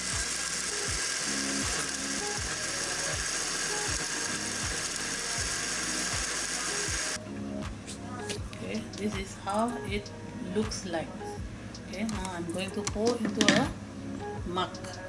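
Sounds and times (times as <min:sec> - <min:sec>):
blender motor running: 0:00.0 - 0:07.2.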